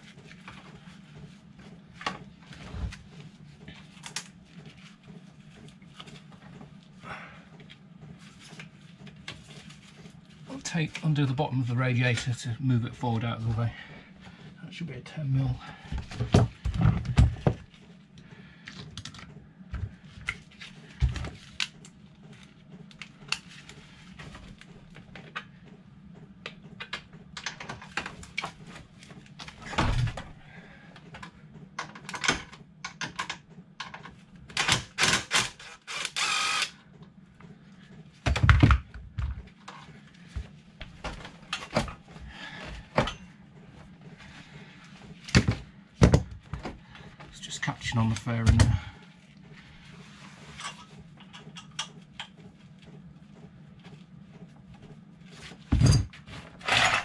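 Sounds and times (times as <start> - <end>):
low steady hum: 0.0 - 57.0
cordless power tool running: 35.3 - 36.8.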